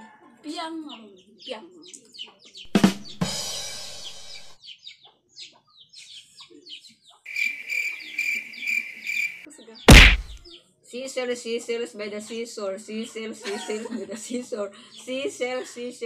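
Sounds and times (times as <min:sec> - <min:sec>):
small birds chirping: 0:00.8 - 0:10.7.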